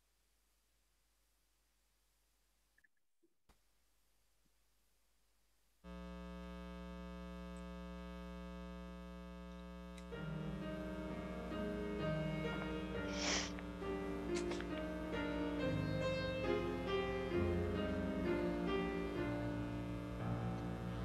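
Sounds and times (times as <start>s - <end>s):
keyboard sustained chord: 10.0s - 21.0s
keyboard melody: 10.1s - 21.0s
brief hiss: 13.1s - 13.7s.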